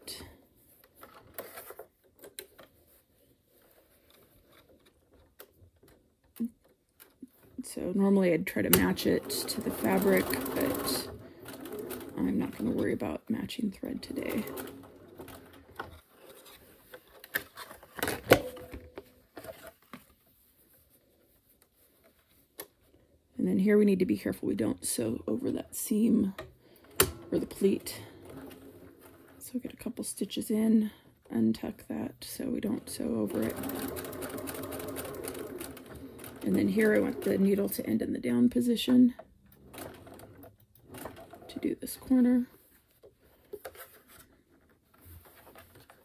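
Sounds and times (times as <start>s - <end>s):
fabric rustling: 2.7s - 5.2s, 8.8s - 23.2s.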